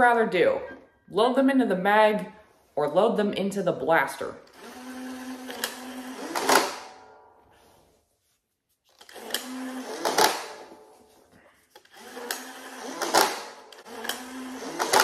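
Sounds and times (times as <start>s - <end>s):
toy blaster flywheels whirring: 4.5s - 6.9s, 9.0s - 10.8s, 11.8s - 15.0s.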